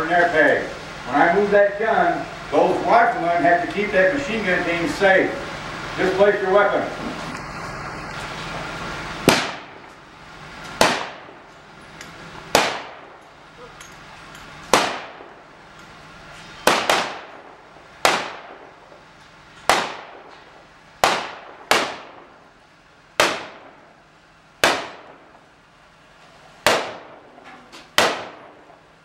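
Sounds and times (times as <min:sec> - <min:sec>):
rifle shots with echo: 0:09.2 - 0:09.9, 0:10.8 - 0:11.5, 0:12.5 - 0:13.2, 0:14.7 - 0:15.5, 0:16.6 - 0:18.9, 0:19.6 - 0:20.4, 0:21.0 - 0:22.4, 0:23.2 - 0:23.9, 0:24.6 - 0:25.4, 0:26.6 - 0:27.3, 0:28.0 - 0:28.8.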